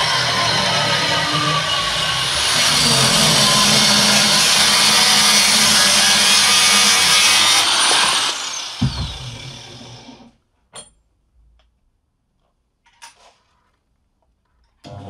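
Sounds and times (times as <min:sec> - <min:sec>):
angle grinder cutting steel: 0:00.0 - 0:10.3
dull thump: 0:08.8 - 0:09.5.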